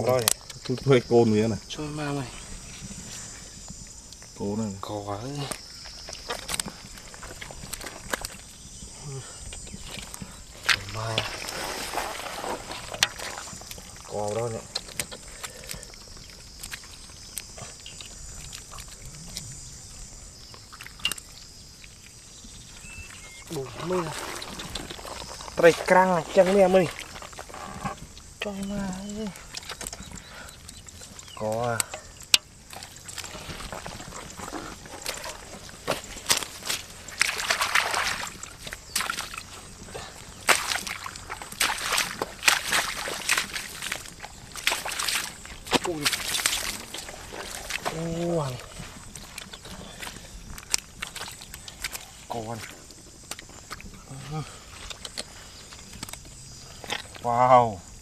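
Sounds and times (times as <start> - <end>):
hands squelching in mud: 5.8 - 19.6, 29.2 - 56.2.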